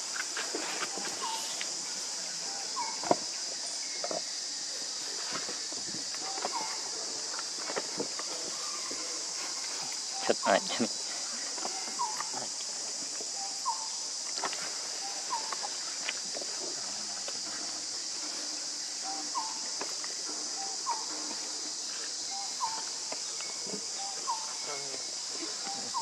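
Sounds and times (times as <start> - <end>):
insects droning: 0.0 - 26.0.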